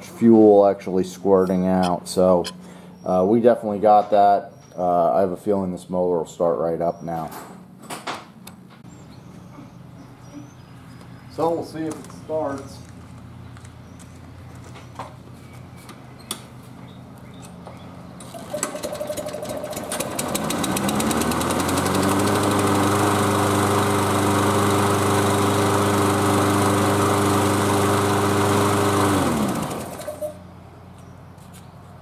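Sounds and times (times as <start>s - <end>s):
lawn mower engine running: 17.6s - 30.6s.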